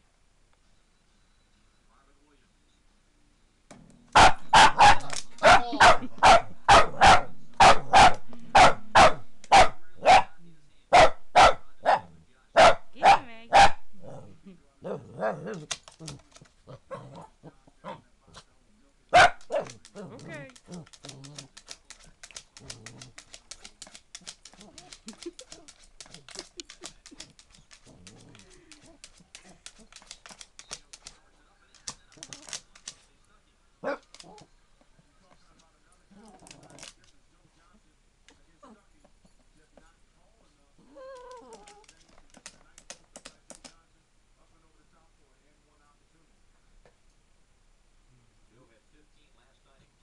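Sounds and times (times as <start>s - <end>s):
dog barking: 4.2s - 14.3s, 19.1s - 20.1s, 33.8s - 34.1s
dog growling: 14.0s - 18.0s, 19.7s - 29.9s, 36.1s - 37.0s, 40.8s - 42.0s
claws and teeth scratching plastic: 15.6s - 16.7s, 19.4s - 33.1s, 35.4s - 37.2s, 41.2s - 43.8s.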